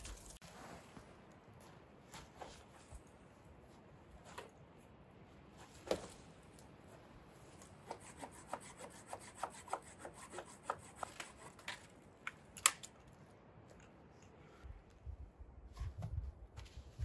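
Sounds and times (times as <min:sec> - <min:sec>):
tool scraping wood: 0:07.8 - 0:11.9.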